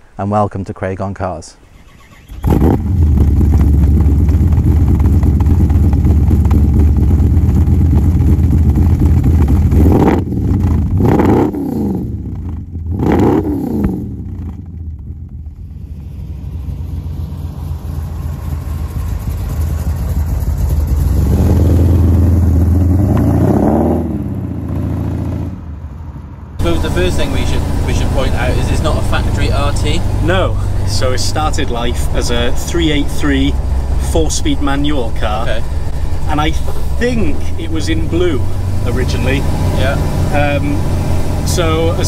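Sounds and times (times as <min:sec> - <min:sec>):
car engine revving: 0:02.0 - 0:42.0
car driving by: 0:13.0 - 0:42.0.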